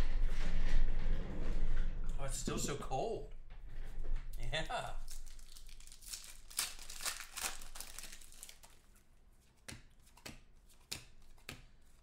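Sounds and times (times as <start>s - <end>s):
foil wrappers crinkling and tearing: 5.0s - 9.1s.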